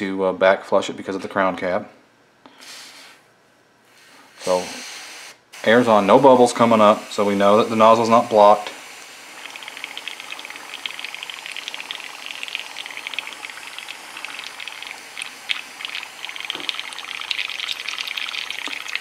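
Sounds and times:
airbrush air bubbling: 4.0s - 19.0s.

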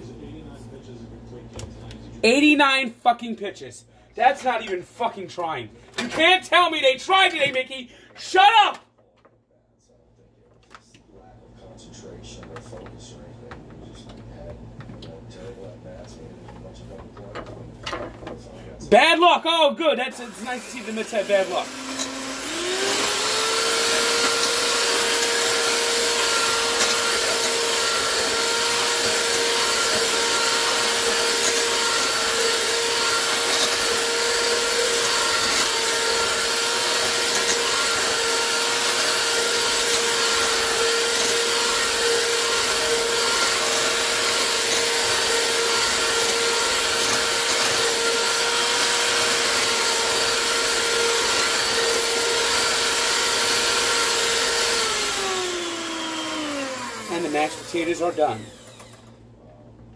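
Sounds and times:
electric hand mixer whine: 20.0s - 59.2s.

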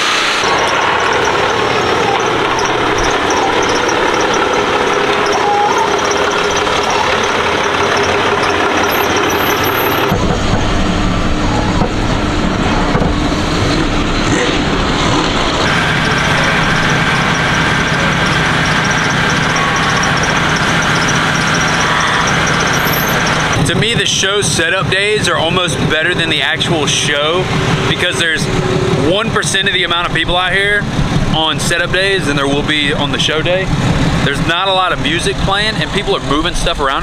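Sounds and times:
vehicle engine noise: 0.0s - 37.0s.

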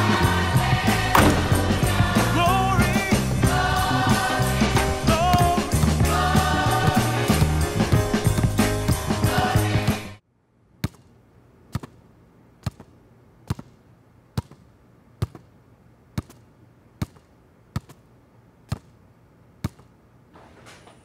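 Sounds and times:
basketball bouncing on hard floor: 1.2s - 1.9s.

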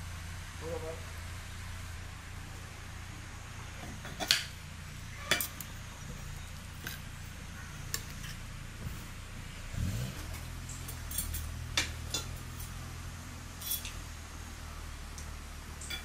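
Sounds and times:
steady low hum: 0.0s - 16.0s
metal utensils clinking cookware: 10.9s - 12.8s, 13.6s - 14.0s, 15.8s - 16.0s.

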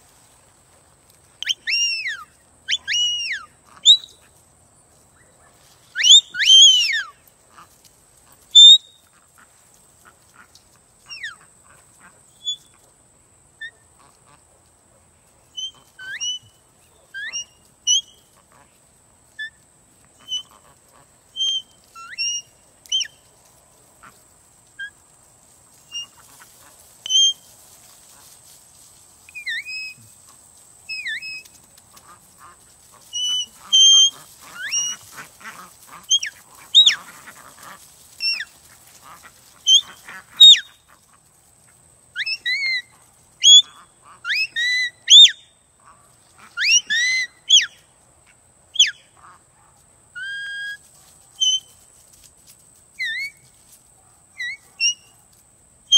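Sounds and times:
ducks calling: 1.4s - 4.4s, 5.2s - 12.9s, 15.6s - 23.3s, 25.7s - 27.4s, 29.3s - 47.8s.

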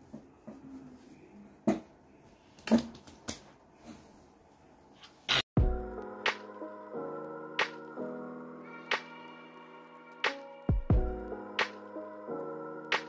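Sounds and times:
music: 5.6s - 13.0s.

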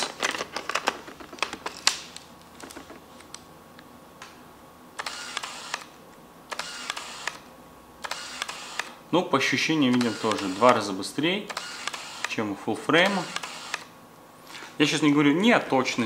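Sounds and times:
autofocus motor whirring: 5.0s - 5.9s, 6.5s - 9.0s, 9.9s - 10.9s, 11.5s - 12.4s, 13.1s - 13.9s.

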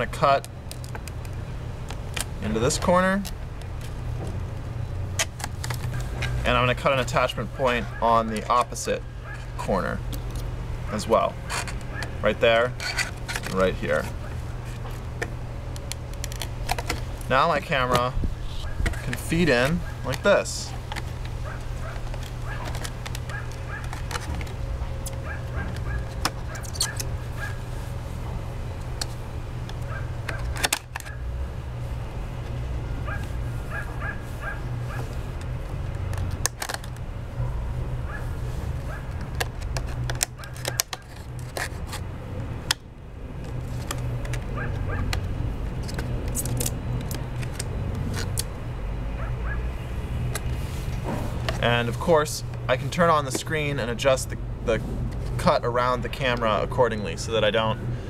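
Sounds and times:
steady low rumble: 0.0s - 40.4s, 41.2s - 58.0s
steady low hum: 0.0s - 58.0s
plastic crinkling and clicking: 0.4s - 4.0s, 14.7s - 17.3s, 20.0s - 27.1s, 35.4s - 37.1s, 39.1s - 42.1s.

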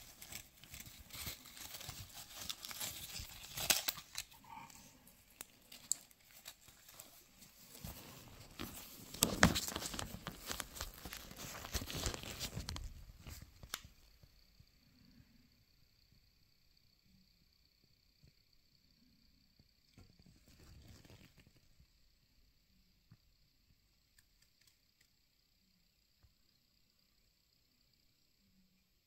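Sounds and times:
cloth pouch rustling: 0.0s - 13.4s
small clicks: 24.1s - 25.2s.

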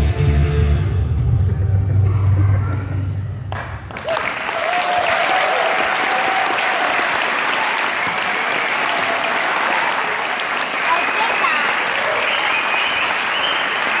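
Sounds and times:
music: 0.0s - 3.6s
audience applause: 3.5s - 14.0s.

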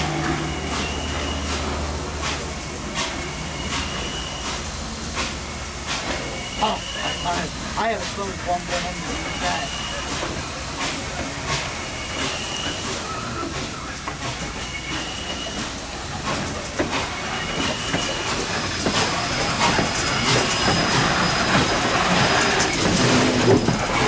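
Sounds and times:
rail joint clicks: 0.0s - 24.0s
train rumbling on track: 0.0s - 24.0s
wheel squeals: 0.2s - 1.6s, 3.0s - 4.6s, 6.2s - 7.5s, 11.8s - 15.8s, 16.9s - 24.0s.

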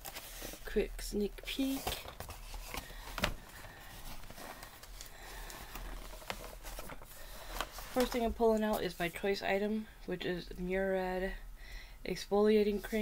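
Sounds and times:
cardboard box packaging rustling: 0.0s - 0.8s, 1.4s - 9.0s.

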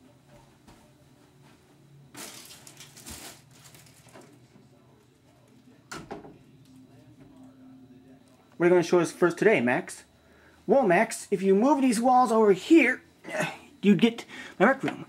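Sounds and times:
rustling and shuffling: 0.0s - 5.6s.

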